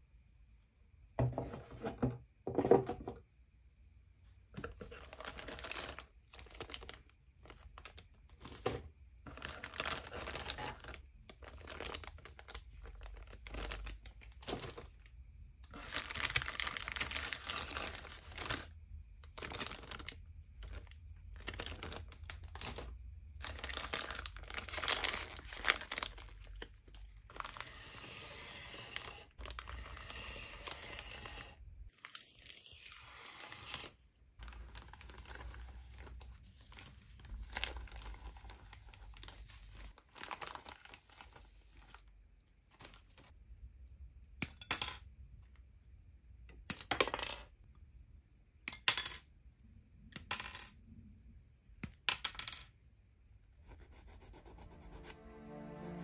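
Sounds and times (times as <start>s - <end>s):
plastic bags crinkling: 4.9s - 27.6s, 29.4s - 29.8s, 34.4s - 41.3s.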